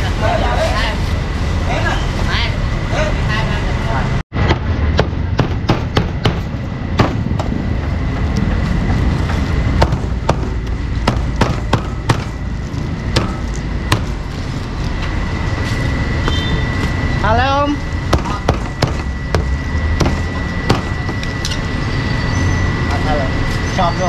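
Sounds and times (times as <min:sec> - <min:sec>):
low rumble of street noise: 0:00.0 - 0:24.0
cleaver chopping meat: 0:18.1 - 0:21.2.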